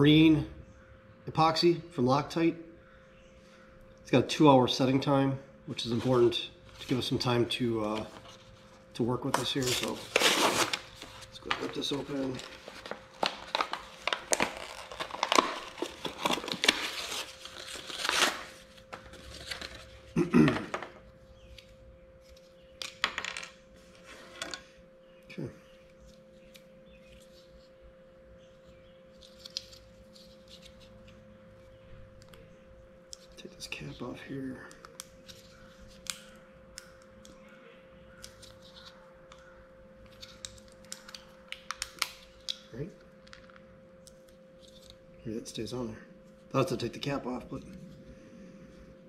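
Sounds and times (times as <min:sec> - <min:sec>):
faint steady hum: 0:00.0 - 0:49.0
plastic package ripped open: 0:09.4 - 0:19.8
plastic crinkling and crackling: 0:09.4 - 0:20.0.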